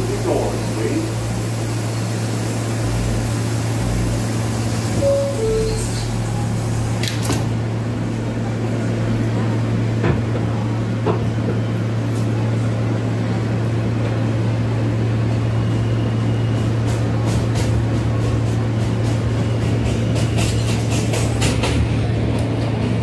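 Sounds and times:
train motors and ventilation hum: 0:00.0 - 0:23.0
train doors shutting click: 0:05.0 - 0:07.6.

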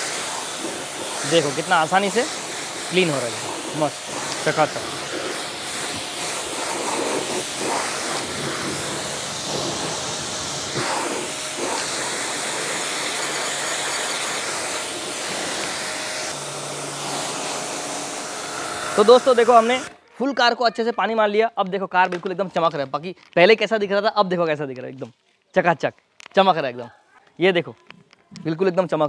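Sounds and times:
pressure washer spray hissing: 0:00.0 - 0:19.9.

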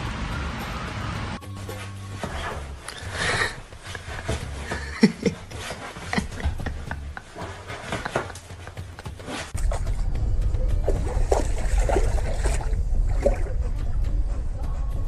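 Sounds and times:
water splashing: 0:07.7 - 0:14.1.

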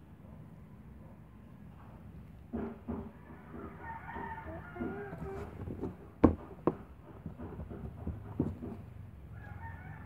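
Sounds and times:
chicken clucking: 0:03.2 - 0:05.6
sharp knocks: 0:05.8 - 0:08.9.

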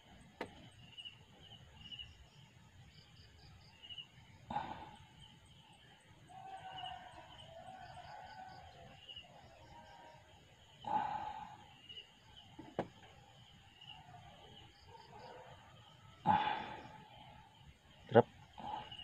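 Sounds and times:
faint insects chirping: 0:00.0 - 0:19.0
dog bark: 0:14.9 - 0:15.7.

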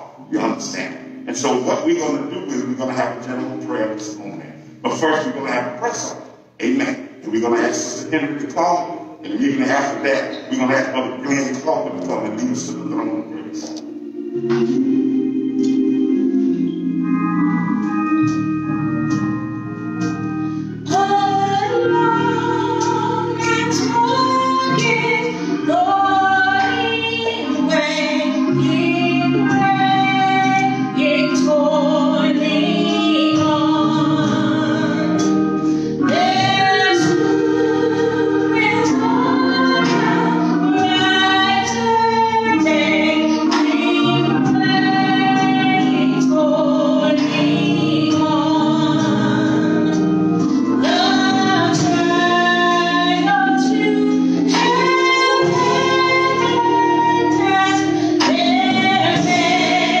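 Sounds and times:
choir voices singing: 0:00.0 - 0:18.4, 0:20.8 - 1:00.0
musical accompaniment: 0:00.0 - 1:00.0
woman singing gospel: 0:20.8 - 1:00.0.

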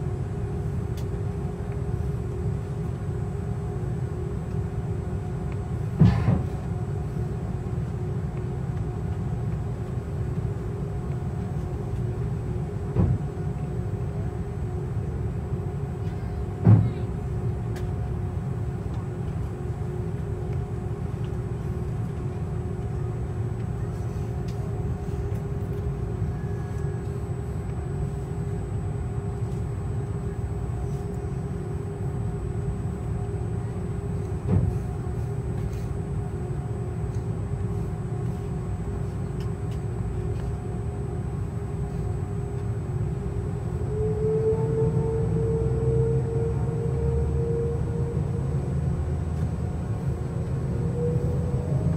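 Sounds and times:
jet engines low rumble: 0:00.0 - 0:51.9
steady cabin hum: 0:00.0 - 0:51.9.

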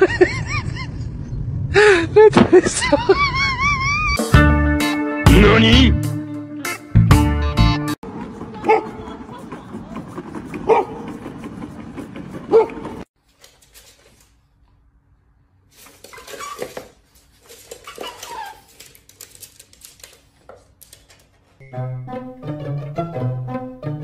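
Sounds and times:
dog barking: 0:08.6 - 0:09.0, 0:10.6 - 0:11.0, 0:12.5 - 0:12.8
dog yelping: 0:08.6 - 0:09.0, 0:10.6 - 0:11.0, 0:12.5 - 0:12.9, 0:17.7 - 0:18.9.

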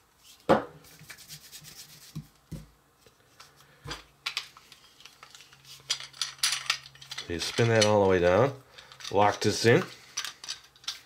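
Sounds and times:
plastic parts clicking and clacking: 0:03.9 - 0:08.2, 0:08.8 - 0:11.0.

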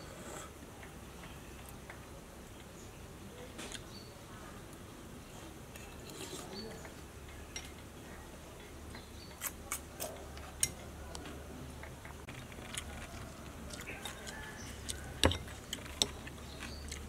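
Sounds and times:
faint background noise: 0:00.0 - 0:17.0.

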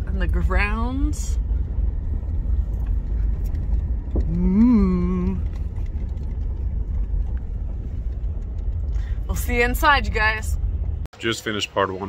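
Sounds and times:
low rumble: 0:00.0 - 0:11.1
short hummed voice: 0:04.2 - 0:05.4.

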